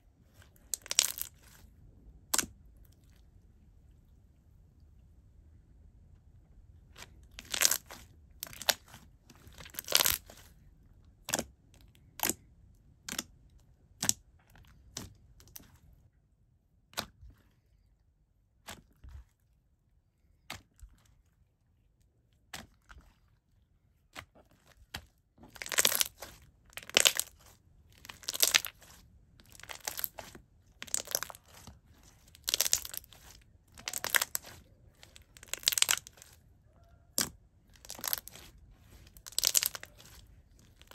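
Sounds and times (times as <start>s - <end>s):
slime squelching and popping: 0.4s - 2.8s, 6.9s - 10.6s, 11.2s - 15.8s, 24.0s - 40.9s.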